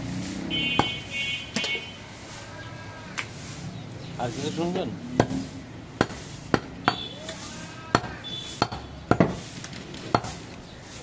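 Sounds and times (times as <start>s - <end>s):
cleaver chopping meat and bone: 0.8s - 1.1s, 5.1s - 9.4s, 10.0s - 10.6s.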